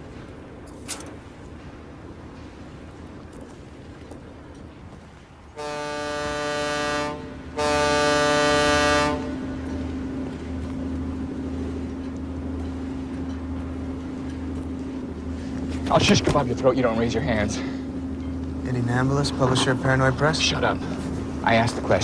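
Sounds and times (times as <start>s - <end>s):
boat horn blasts: 5.5s - 10.7s
low engine drone: 6.0s - 22.0s.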